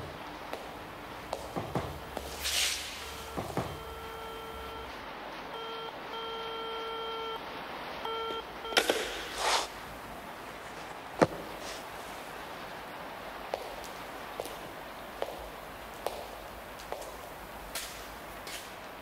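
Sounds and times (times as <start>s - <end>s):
short swish: 2.2s - 3.1s, 8.9s - 9.8s
electronic beep tone: 3.1s - 4.9s, 5.6s - 7.4s, 8.0s - 8.9s
knocks: 3.3s - 3.9s.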